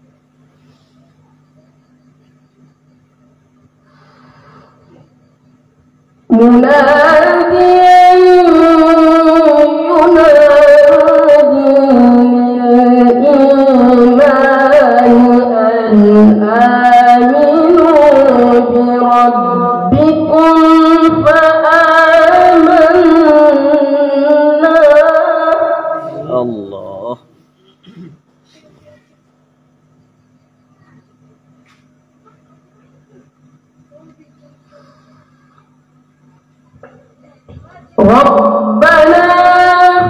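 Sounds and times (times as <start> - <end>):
boy reciting melodically: 6.3 - 27.2, 37.2 - 40.0.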